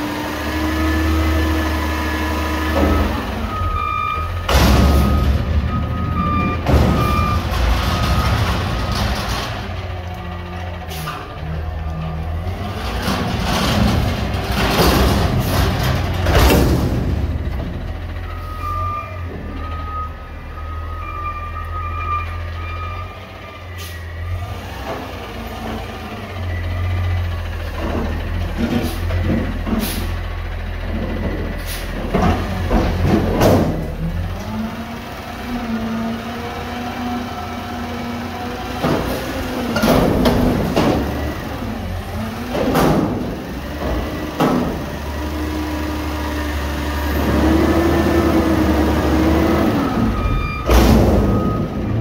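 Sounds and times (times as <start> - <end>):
garbage truck engine revving: 0.0 - 52.0
sudden loud bangs from truck: 4.4 - 9.2, 13.7 - 17.8, 39.8 - 41.2, 42.6 - 44.8, 50.5 - 51.7.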